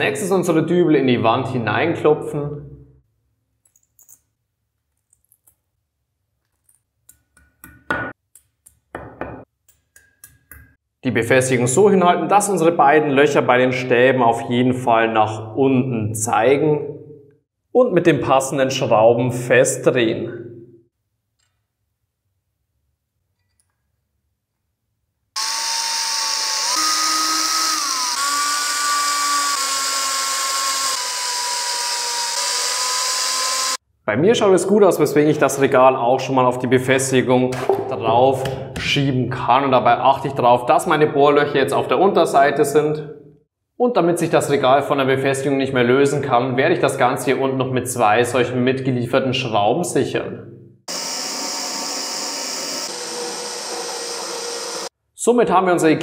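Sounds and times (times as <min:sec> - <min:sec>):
cordless drill driving screws: 0:25.4 - 0:33.8, 0:50.9 - 0:54.9.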